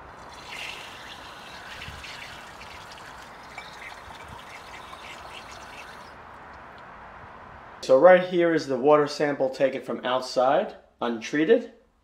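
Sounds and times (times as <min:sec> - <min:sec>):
water splashing into a glass: 0:00.1 - 0:06.2.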